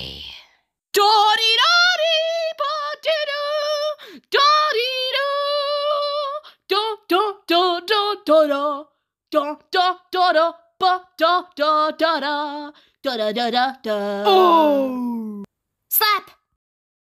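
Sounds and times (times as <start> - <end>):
high-pitched voice singing: 9.4 - 16.4.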